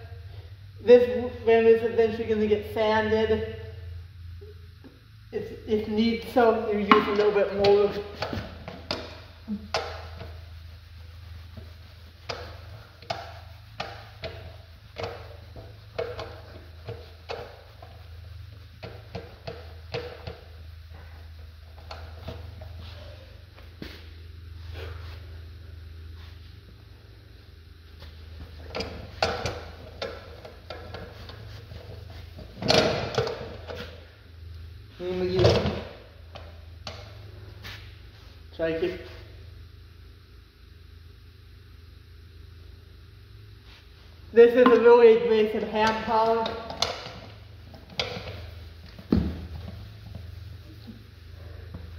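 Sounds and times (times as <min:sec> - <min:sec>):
steady low hum: 0:00.0 - 0:51.9
rag rubbing metal wheel rim: 0:06.9 - 0:23.4.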